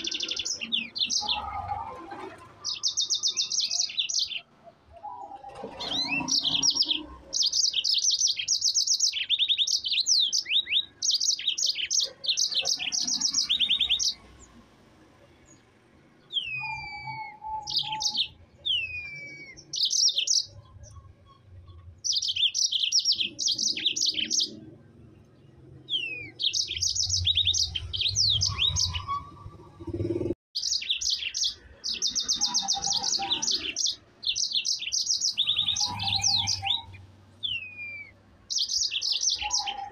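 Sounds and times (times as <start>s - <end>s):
canary trilling: 0.0s - 4.5s, 5.1s - 14.4s, 16.2s - 24.7s, 25.9s - 39.9s
bird down-slurred whistles: 16.4s - 19.6s.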